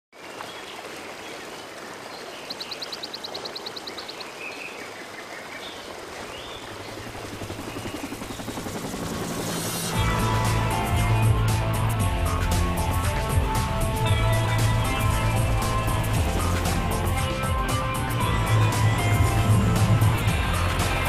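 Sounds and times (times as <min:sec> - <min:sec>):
water rushing from waterfall: 0:00.2 - 0:07.5
even pulsing: 0:07.0 - 0:21.0
music: 0:07.4 - 0:21.0.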